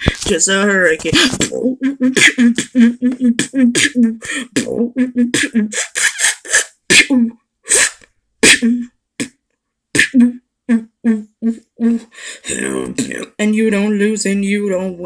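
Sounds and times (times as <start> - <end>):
beatboxing mouth percussion: 1.2 - 9.4, 10.0 - 13.2.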